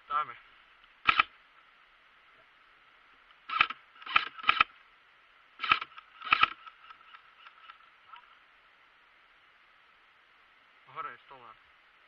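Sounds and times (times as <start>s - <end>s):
airsoft rifle bursts: 1.0s - 1.3s, 3.5s - 4.7s, 5.6s - 7.8s.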